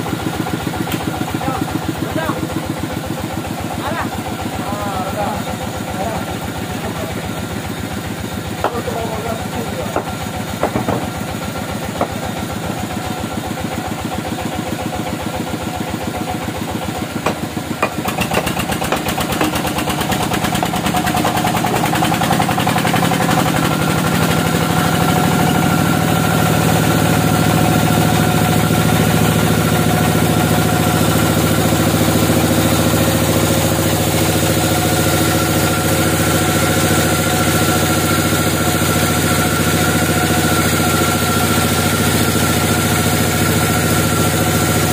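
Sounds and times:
band saw cutting log: 8.5s - 12.9s, 16.9s - 44.9s
knocks of log on carriage: 9.9s - 11.3s, 17.2s - 20.8s.

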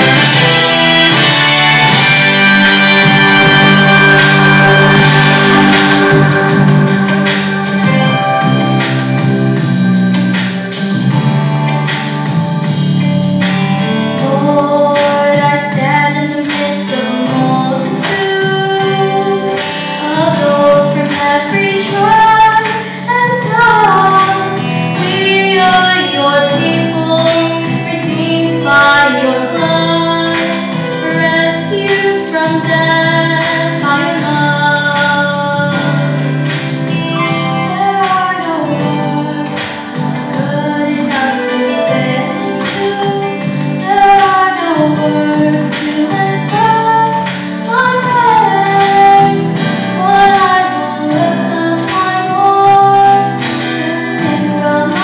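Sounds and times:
instrumental accompaniment: 0.0s - 55.0s.

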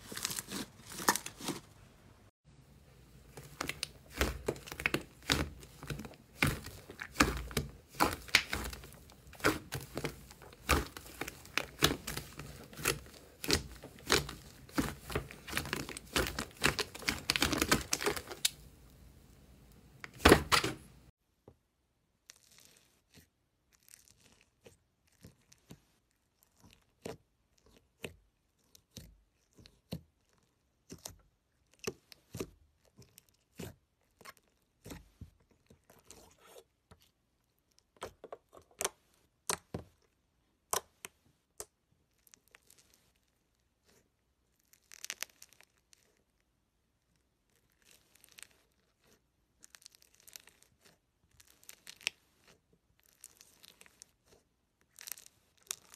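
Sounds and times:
slime crackling and tearing: 0.0s - 1.6s, 3.2s - 18.8s, 22.2s - 25.7s, 42.1s - 46.4s, 47.4s - 55.9s.

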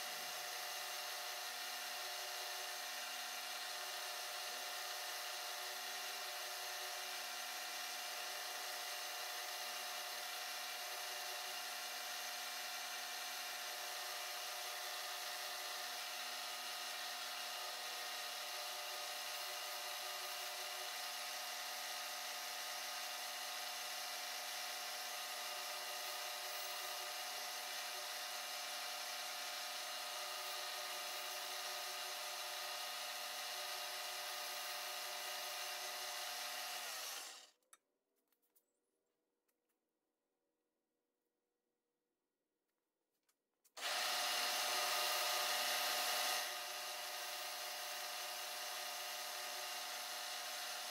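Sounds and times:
milling machine cutting metal: 35.6s - 37.5s.

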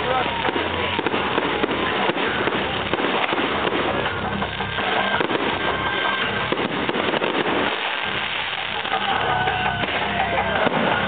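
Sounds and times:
fireworks bangs and crackling: 0.0s - 11.0s.

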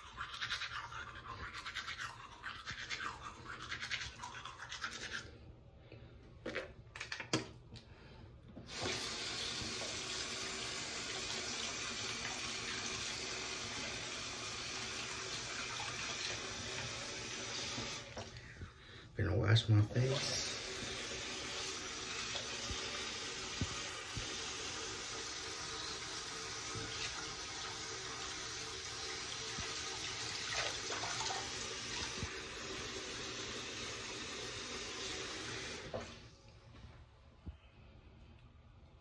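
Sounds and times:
toothbrush scrubbing teeth: 0.0s - 5.4s
tap running: 8.5s - 10.2s.

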